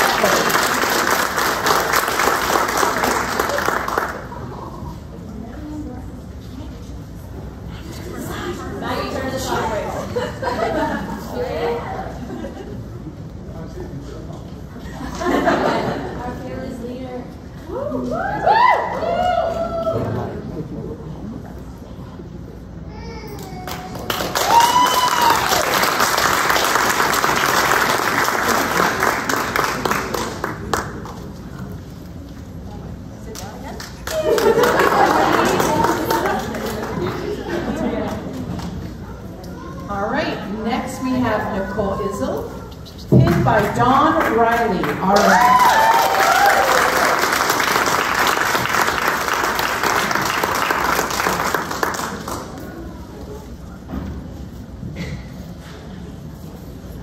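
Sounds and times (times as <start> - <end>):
audience applauding: 0.0 - 4.6, 23.6 - 31.4, 33.8 - 38.8, 44.2 - 52.9
whooping cheer: 17.7 - 20.4, 24.1 - 25.9, 45.2 - 47.4.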